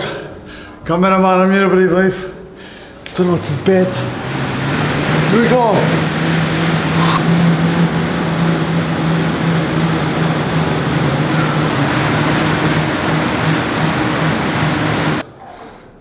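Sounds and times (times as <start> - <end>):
exercise bike fan whirring: 2.6 - 15.3.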